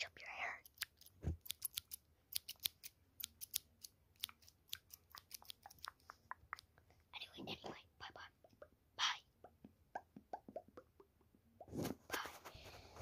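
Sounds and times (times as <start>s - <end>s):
sharp clicks and snips: 0.5s - 6.9s.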